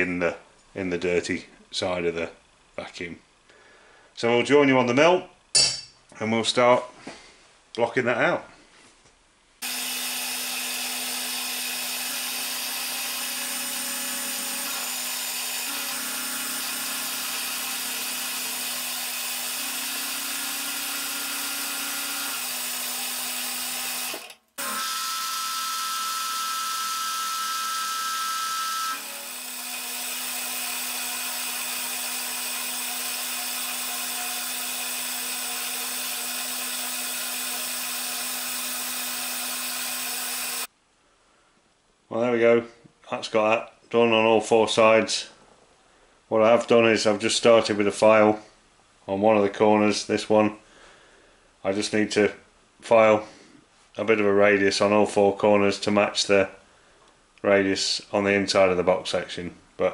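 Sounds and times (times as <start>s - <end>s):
milling machine motor hum: 9.6s - 40.7s.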